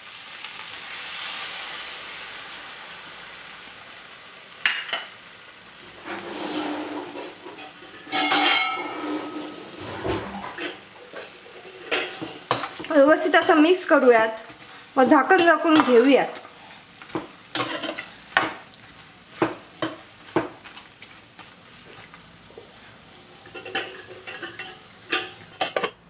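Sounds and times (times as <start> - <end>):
slurry sizzling in hot pan: 0.0 - 26.0
utensil clinking against pan: 7.1 - 10.8, 23.4 - 26.0.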